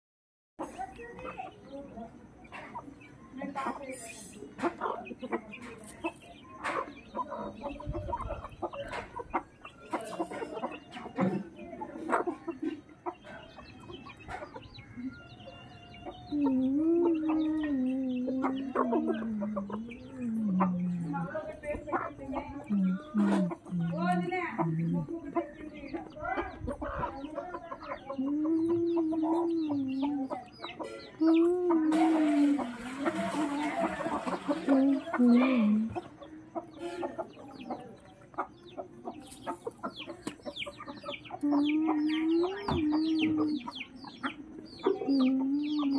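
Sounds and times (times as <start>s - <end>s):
chickens clucking: 0.6s - 45.9s
long wavering calls: 31.1s - 35.9s.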